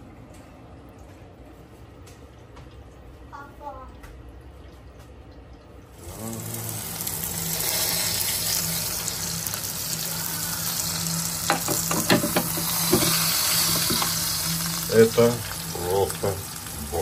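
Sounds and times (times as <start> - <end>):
low steady hum: 0.0 - 17.0
food sizzling on a grill: 5.9 - 17.0.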